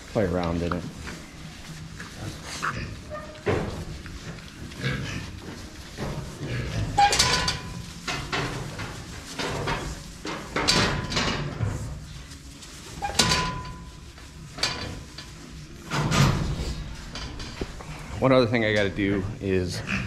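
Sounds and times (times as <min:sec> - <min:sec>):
pigs rooting in sawdust: 0:00.0 - 0:20.0.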